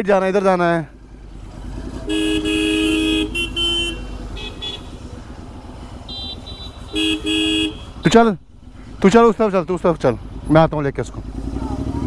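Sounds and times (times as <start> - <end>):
motorcycle engine running: 0.3 - 12.0
two-tone vehicle horn honking: 2.0 - 5.0, 6.0 - 8.1.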